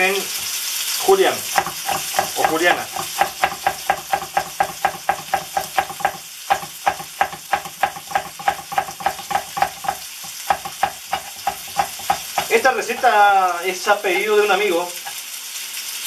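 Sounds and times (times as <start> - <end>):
vegetables sizzling in a pan: 0.0 - 16.0
knife chopping on wooden board: 1.5 - 13.4.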